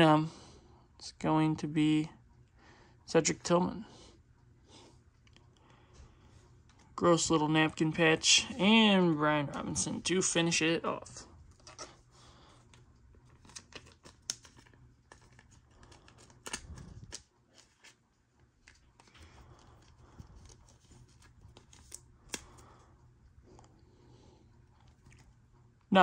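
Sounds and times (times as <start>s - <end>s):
trading cards rustling and clicking: 11.0s - 22.8s.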